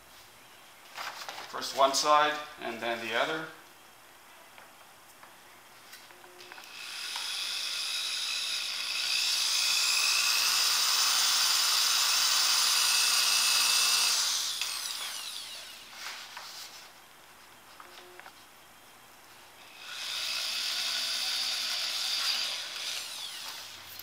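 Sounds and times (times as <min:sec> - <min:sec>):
electric drill whining: 0:06.3 - 0:16.0, 0:19.6 - 0:24.0.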